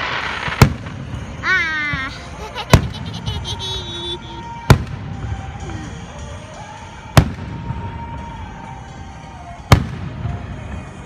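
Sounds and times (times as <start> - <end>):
loud firework bang: 0.0 - 1.3
low rumble of fireworks: 0.0 - 11.0.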